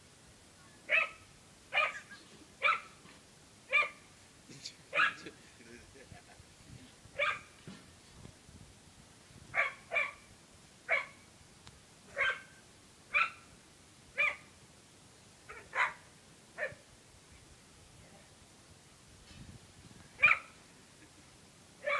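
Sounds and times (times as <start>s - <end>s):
dog barking: 0.9s - 3.0s, 3.7s - 4.0s, 4.9s - 5.3s, 7.2s - 7.5s, 9.6s - 10.2s, 10.9s - 11.2s, 12.1s - 13.4s, 14.2s - 14.5s, 15.5s - 16.0s, 16.6s - 16.8s, 20.2s - 20.6s.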